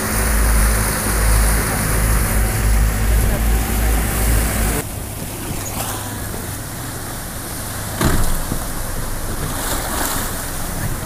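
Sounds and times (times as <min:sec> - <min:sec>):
outboard motor running: 0:00.0 - 0:11.0
water noise: 0:00.0 - 0:11.0
wind rumble: 0:00.0 - 0:11.0
loud thump: 0:08.0 - 0:08.6.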